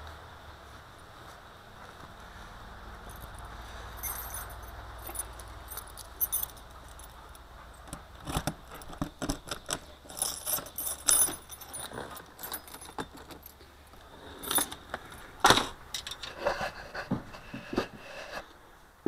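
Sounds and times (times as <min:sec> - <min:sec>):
keys jangling in a lock: 0:03.1 - 0:13.7, 0:14.4 - 0:15.3, 0:16.0 - 0:16.3.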